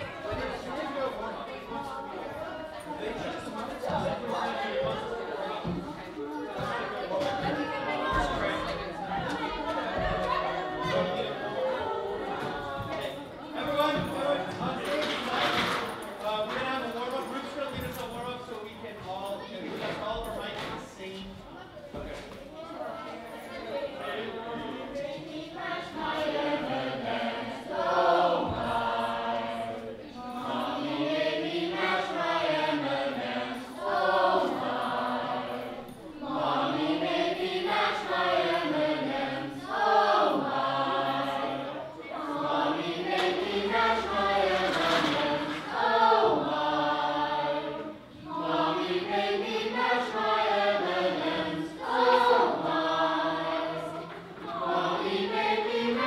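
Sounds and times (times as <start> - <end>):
chorus singing: 0.0 - 20.8, 22.4 - 56.0.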